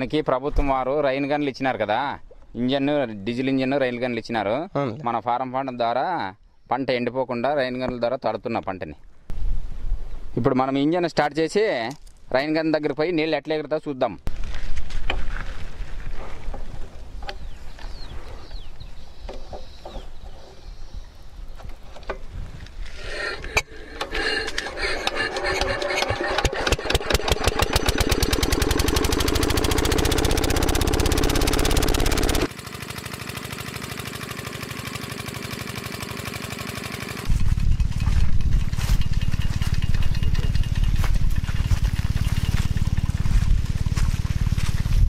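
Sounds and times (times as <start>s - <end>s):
diesel engine starting: 23.0s - 45.0s.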